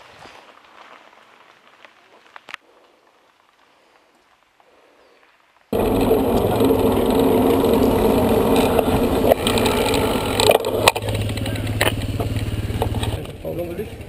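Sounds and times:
truck engine running: 5.8s - 14.0s.

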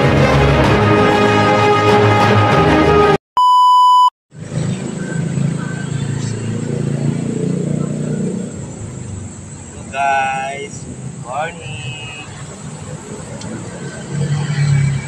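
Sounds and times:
music intro: 0.0s - 3.2s
short electronic beep: 3.4s - 4.1s
low rumble of street traffic: 4.3s - 15.0s.

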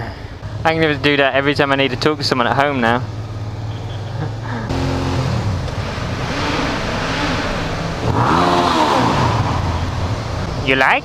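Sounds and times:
motorcycle engine revving: 0.4s - 10.8s.

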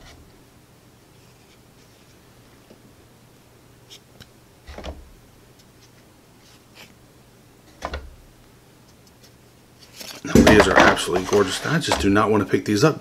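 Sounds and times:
cardboard tiles shuffled: 9.0s - 12.2s.

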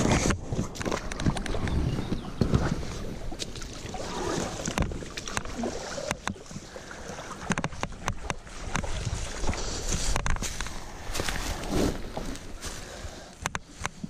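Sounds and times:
splashing in shallow water: 0.0s - 14.0s
sharp clicks and knocks: 7.4s - 8.9s, 13.4s - 14.0s.

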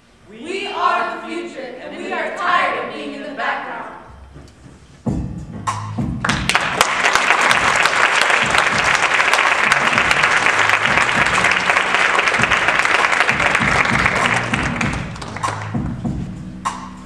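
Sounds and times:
audience applauding: 6.2s - 15.8s.

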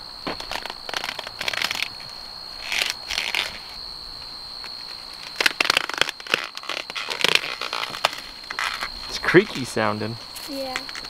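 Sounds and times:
corn stalks rustling: 5.2s - 9.3s.

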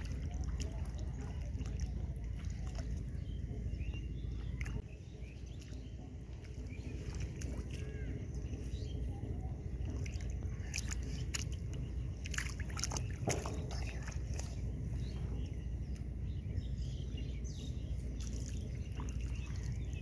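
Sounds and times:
hands splashing in muddy water: 0.0s - 3.4s, 9.8s - 15.0s
steady low rumble: 0.0s - 20.0s.

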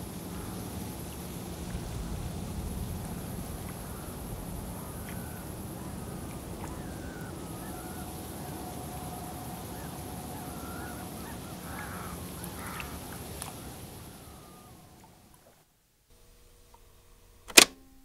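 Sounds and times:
steady synth tone: 0.0s - 15.4s
wavering call-like glides: 0.0s - 15.6s
rumbling hissing noise bed: 0.0s - 18.0s.

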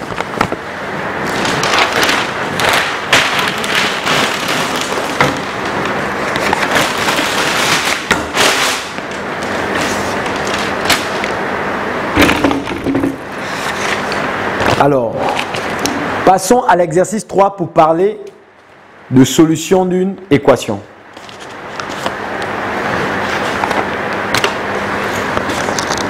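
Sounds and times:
paper sheets rustling and crackling: 0.0s - 11.4s, 12.2s - 15.8s, 21.1s - 22.2s, 22.9s - 26.0s.

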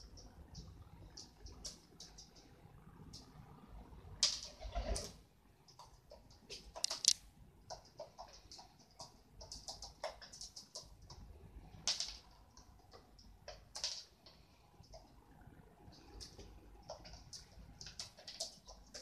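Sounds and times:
pigeons pecking on wooden floor: 7.7s - 15.1s, 15.9s - 19.0s.

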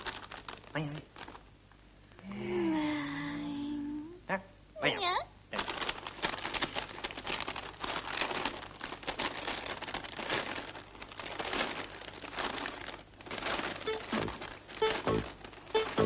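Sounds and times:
paper crinkling and rustling: 0.0s - 1.5s, 5.6s - 16.0s
plucked music notes: 13.9s - 16.0s.

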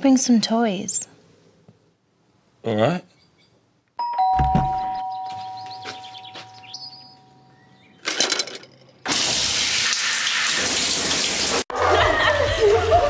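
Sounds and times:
two-tone doorbell chime: 4.0s - 7.9s
shower water spraying: 9.1s - 11.7s.

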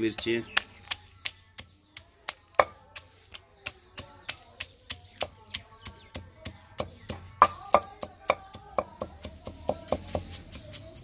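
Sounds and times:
pestle pounding in stone mortar: 0.0s - 11.0s.

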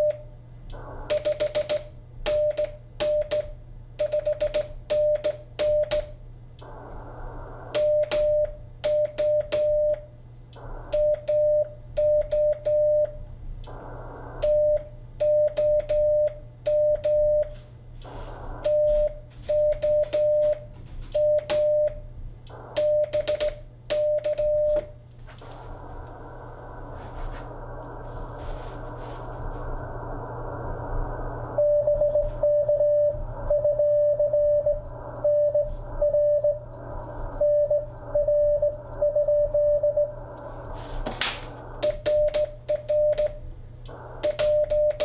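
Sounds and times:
radio receiver hiss: 6.6s - 8.3s, 13.5s - 15.2s, 18.0s - 18.8s, 25.2s - 32.4s, 33.1s - 42.7s, 43.4s - 45.0s
morse code sidetone: 31.6s - 36.6s, 37.4s - 40.2s.

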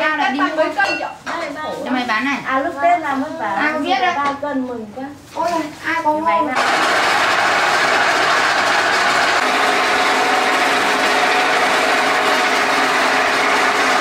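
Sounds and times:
faint constant hum: 0.0s - 6.6s
motor running: 6.6s - 14.0s.

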